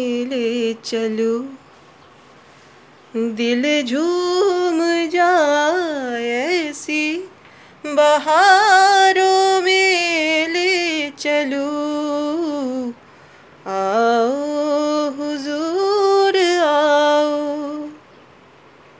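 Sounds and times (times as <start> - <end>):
woman singing unaccompanied: 0.0 - 1.9, 3.0 - 18.1.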